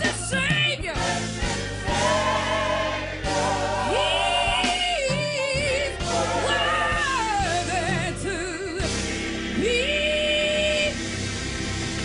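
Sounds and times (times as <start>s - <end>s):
woman singing with vibrato: 0.0s - 1.2s, 3.9s - 8.9s, 9.6s - 10.9s
low instrumental accompaniment: 0.0s - 12.0s.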